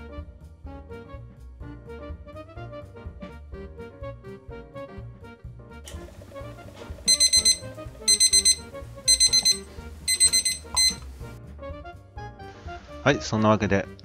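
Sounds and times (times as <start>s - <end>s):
kitchen timer beeping: 6.4s - 11.2s.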